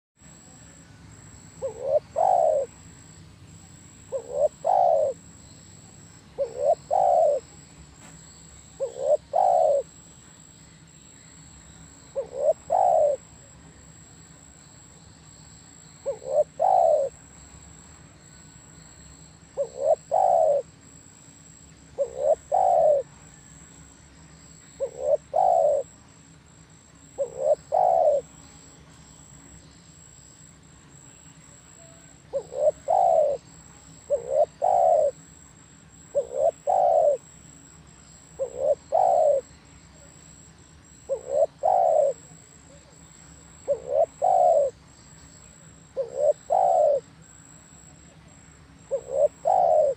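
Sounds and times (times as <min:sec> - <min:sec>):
dove cooing: 0:01.6 - 0:02.8, 0:04.0 - 0:05.3, 0:06.3 - 0:07.6, 0:08.7 - 0:10.0, 0:12.1 - 0:13.5, 0:16.0 - 0:17.2, 0:19.6 - 0:20.7, 0:22.0 - 0:23.1, 0:24.8 - 0:25.9, 0:27.0 - 0:28.4, 0:31.7 - 0:35.2, 0:36.1 - 0:37.5, 0:38.4 - 0:44.8, 0:45.6 - 0:47.1, 0:48.8 - 0:49.9.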